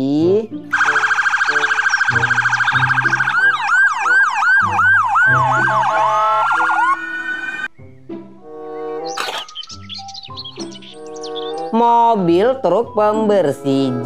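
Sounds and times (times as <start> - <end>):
light background music: 0.0 - 14.0
ambulance siren: 0.7 - 7.7.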